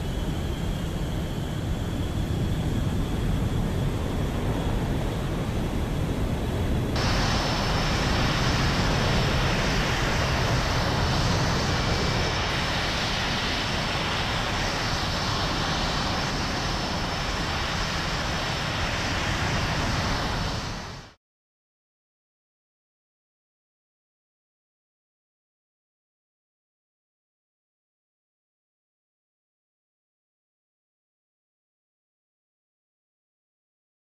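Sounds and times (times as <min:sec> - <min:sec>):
jet aircraft engines running: 0:00.0 - 0:21.2.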